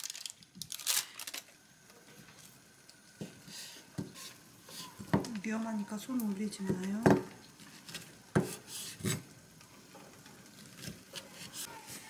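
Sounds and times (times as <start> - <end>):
plastic wrapper crinkling: 0.0 - 1.6.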